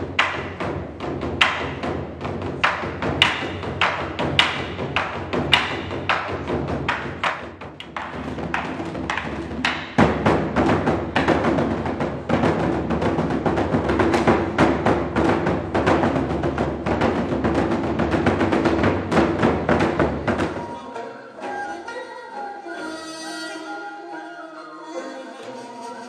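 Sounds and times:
barrel drums struck with sticks: 0:00.0 - 0:20.8.

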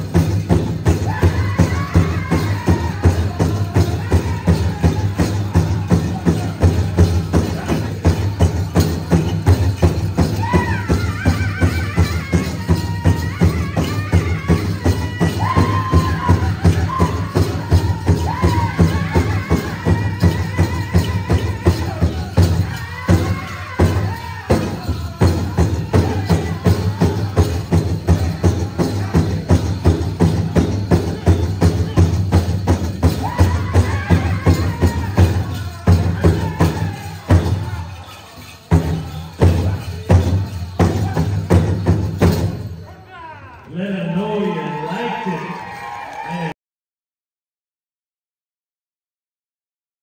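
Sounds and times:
big drum beating: 0:00.0 - 0:37.9
high-pitched group singing: 0:00.8 - 0:08.0, 0:10.2 - 0:32.2, 0:33.0 - 0:41.4.

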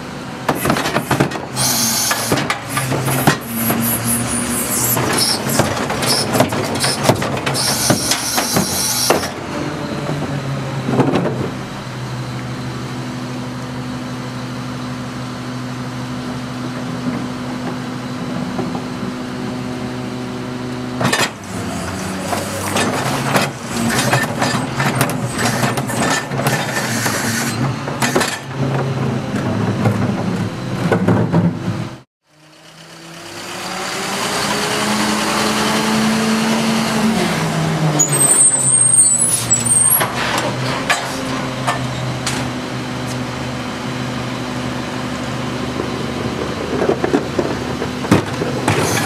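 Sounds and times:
garbage truck engine running: 0:00.1 - 0:49.0
banging and clattering at hopper: 0:04.9 - 0:09.4, 0:21.0 - 0:31.9, 0:45.7 - 0:49.0.

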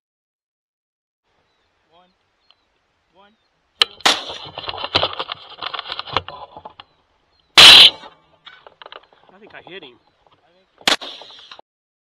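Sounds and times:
rifle shot: 0:03.8 - 0:04.6, 0:07.6 - 0:08.1, 0:10.8 - 0:11.5
faint clicks and crackles: 0:04.4 - 0:07.0.

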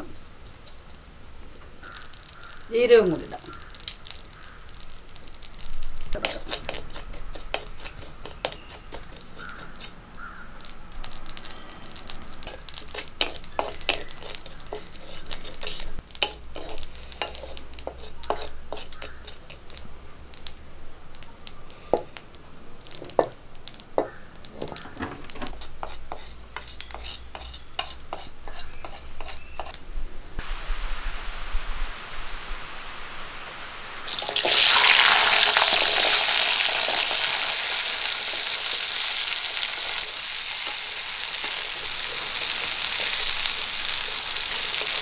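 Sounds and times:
wooden spatula scraping seeds: 0:00.0 - 0:01.1, 0:01.8 - 0:19.9, 0:24.6 - 0:29.8, 0:37.0 - 0:45.0
seeds clicking while roasting: 0:00.0 - 0:29.8, 0:34.1 - 0:45.0.

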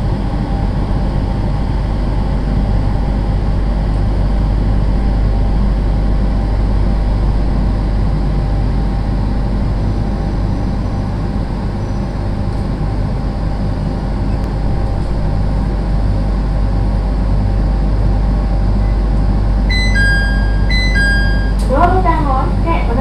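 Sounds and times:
train car rumble and hum: 0:00.0 - 0:23.0
two-note electronic chime: 0:19.7 - 0:22.0.

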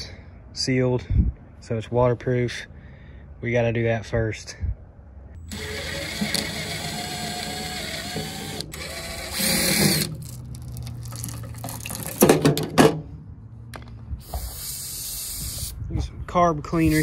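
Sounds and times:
cordless drill whining: 0:05.4 - 0:10.2.

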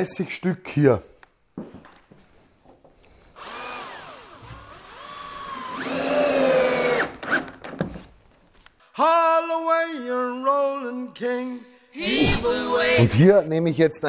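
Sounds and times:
drill motor whining: 0:03.4 - 0:07.5.

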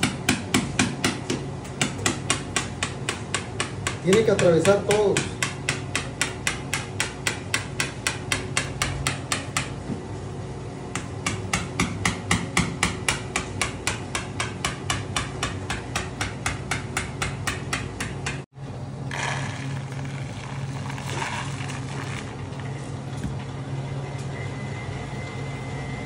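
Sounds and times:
mallet tapping wooden dowel: 0:00.0 - 0:09.7, 0:10.9 - 0:18.4.

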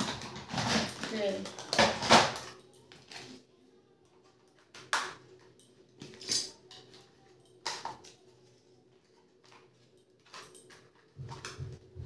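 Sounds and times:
plastic toys clacking: 0:00.0 - 0:03.4.

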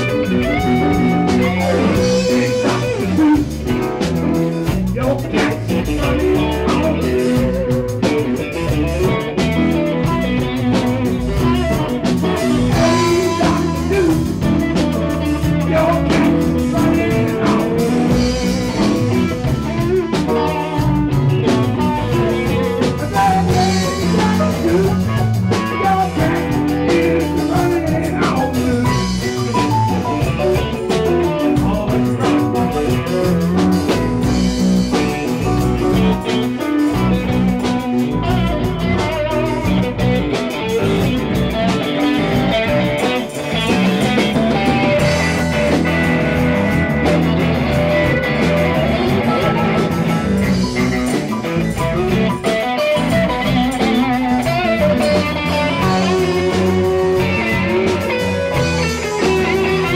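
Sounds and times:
bass guitar: 0:00.0 - 0:59.9
drum kit: 0:00.0 - 0:59.9
electric guitar: 0:00.0 - 0:59.9
keyboard: 0:00.0 - 0:59.9.

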